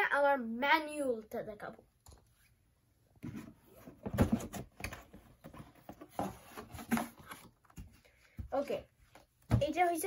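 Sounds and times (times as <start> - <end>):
cardboard box rustling and scraping: 3.2 - 7.6.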